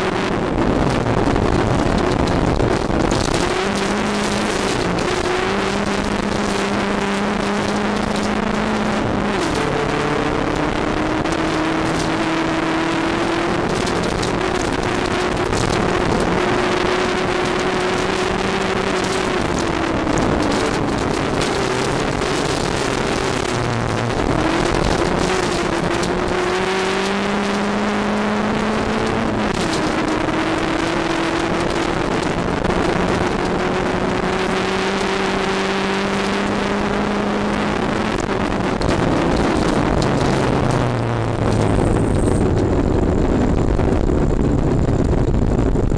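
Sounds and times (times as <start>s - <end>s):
rally car engine revving: 0.0s - 45.9s
tyres on gravel: 0.6s - 27.8s, 38.1s - 45.8s.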